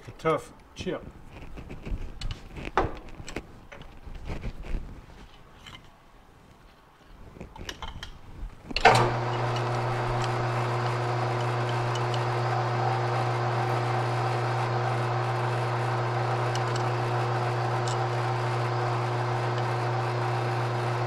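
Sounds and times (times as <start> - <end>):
metal lathe humming: 8.8 - 21.0.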